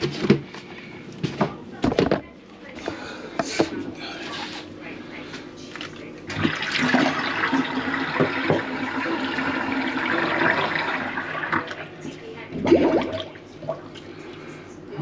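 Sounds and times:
water rushing in a sink: 0:06.3 - 0:14.1.

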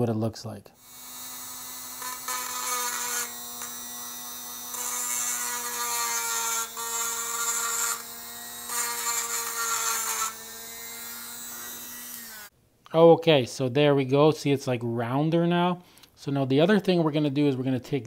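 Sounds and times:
rotary tool grinding metal: 0:00.8 - 0:12.5.

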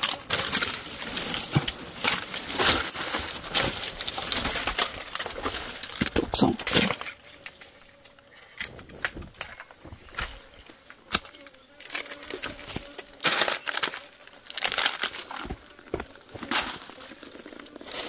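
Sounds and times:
footsteps crunching through dry leaves: 0:11.8 - 0:18.0.

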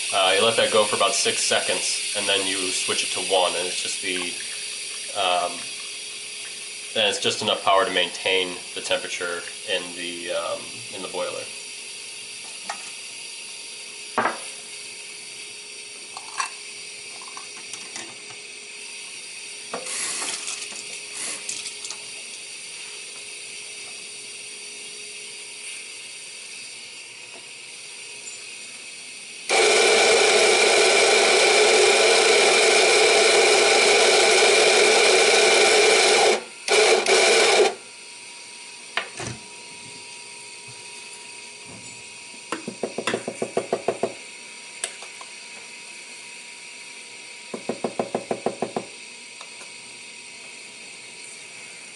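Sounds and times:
electric coffee grinder motor: 0:00.0 - 0:11.5, 0:25.8 - 0:39.1.

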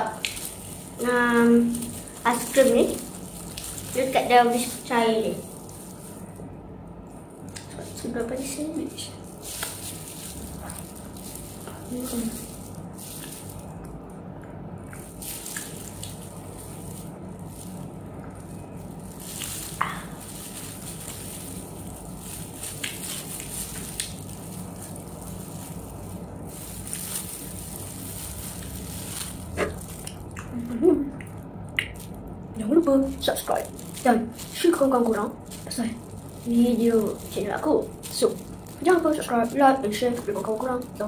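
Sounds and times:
plastic gloves crinkling: 0:00.0 - 0:41.0
steady background hum: 0:00.0 - 0:41.0
soft chewing: 0:27.9 - 0:32.1.

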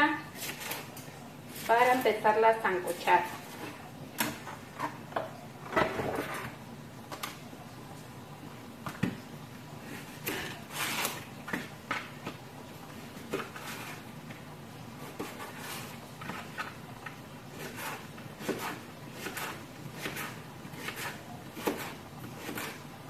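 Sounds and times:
knife chopping on cutting board: 0:17.5 - 0:22.8.

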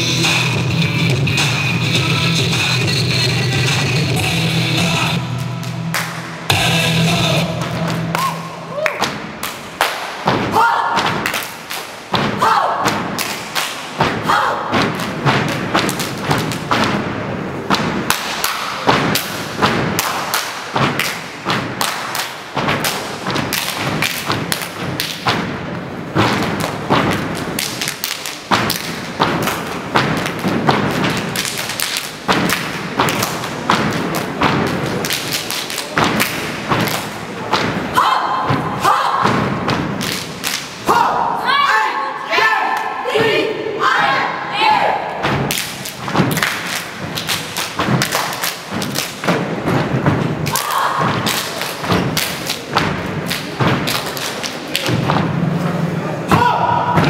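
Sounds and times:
dance music with thumping beat: 0:00.0 - 0:05.4, 0:06.5 - 0:08.1
vocals in music: 0:00.0 - 0:05.9, 0:06.5 - 0:08.1.

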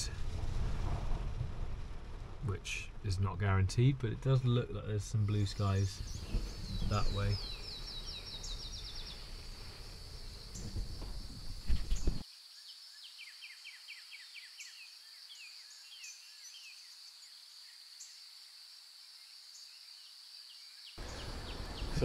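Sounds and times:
rain and wind on a car: 0:00.0 - 0:12.2, 0:21.0 - 0:22.0
small birds chirping: 0:02.4 - 0:18.3, 0:19.1 - 0:22.0
high-pitched hiss: 0:02.4 - 0:20.4, 0:21.0 - 0:22.0.

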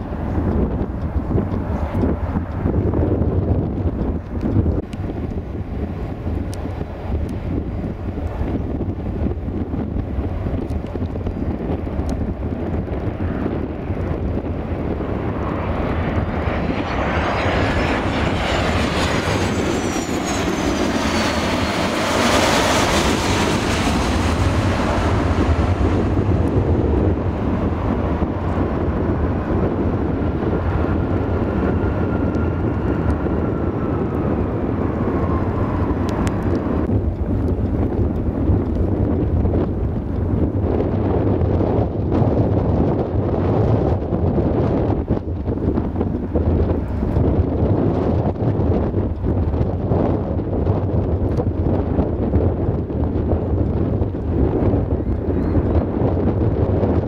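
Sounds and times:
jet airliner passing: 0:00.0 - 0:57.0
wind rumble on microphone: 0:00.0 - 0:57.0
faint jet whine: 0:12.1 - 0:50.9.

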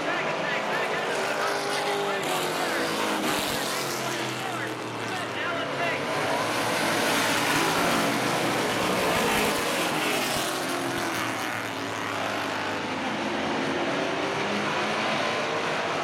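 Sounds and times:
race car engines: 0:00.0 - 0:16.0.

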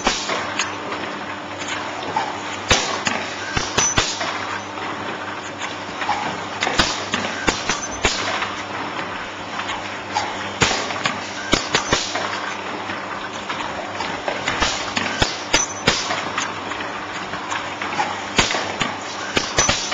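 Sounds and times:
sharp machine clacks: 0:00.0 - 0:00.8, 0:02.7 - 0:04.7, 0:06.6 - 0:08.5, 0:10.6 - 0:12.3, 0:14.5 - 0:16.5, 0:18.4 - 0:19.9
gluing machine clattering: 0:19.3 - 0:19.9.

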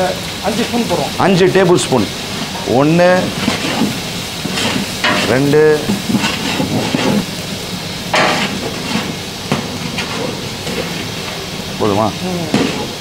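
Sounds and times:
onions sizzling in hot oil: 0:00.0 - 0:13.0
metal spoon scraping a pot: 0:03.3 - 0:07.3, 0:08.2 - 0:11.1.

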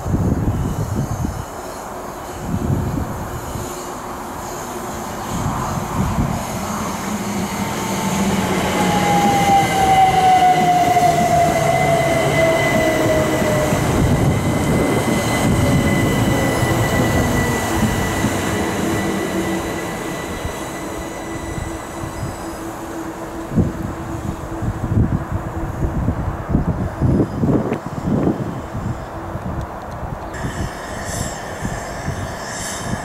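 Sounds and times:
train wheel and track rumble: 0:00.0 - 0:33.0
steady high whine: 0:02.2 - 0:33.0
whine sliding down in pitch: 0:06.3 - 0:25.3.

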